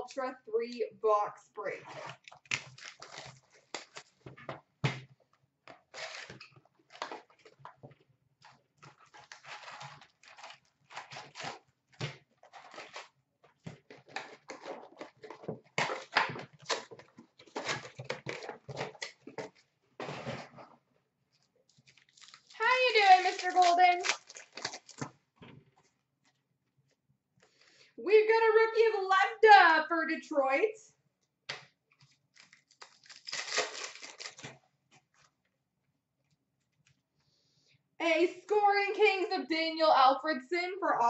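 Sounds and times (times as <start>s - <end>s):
wrappers crinkling and tearing: 1.9s - 4.3s, 5.9s - 7.6s, 8.4s - 11.7s, 12.4s - 13.2s, 13.8s - 19.6s, 21.7s - 25.2s, 32.0s - 34.6s.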